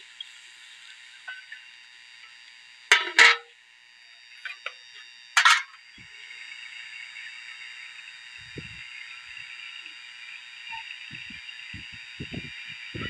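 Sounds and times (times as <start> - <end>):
metal lid clanking on pot: 2.9 - 3.5, 5.4 - 5.8
metallic clank: 2.9 - 3.5, 5.4 - 5.8.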